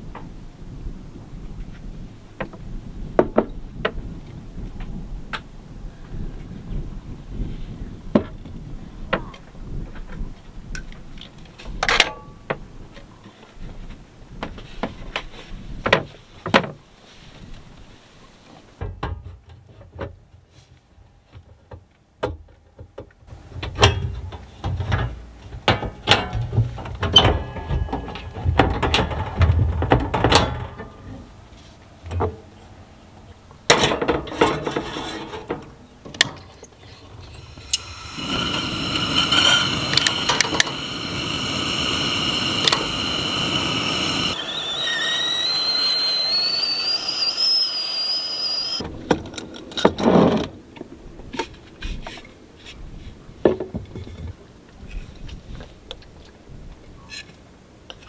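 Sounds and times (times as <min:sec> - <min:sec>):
kettle hissing: 0:37.2 - 0:48.8
kettle whistling: 0:37.2 - 0:48.8.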